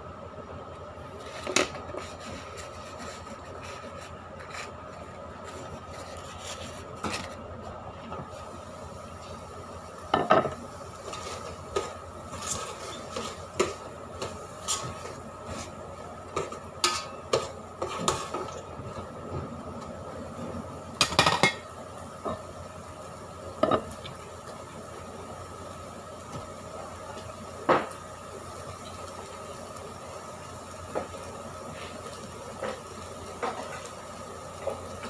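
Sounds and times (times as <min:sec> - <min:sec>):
metal pots and utensils clattering: 0:16.3 - 0:18.6, 0:21.0 - 0:21.7.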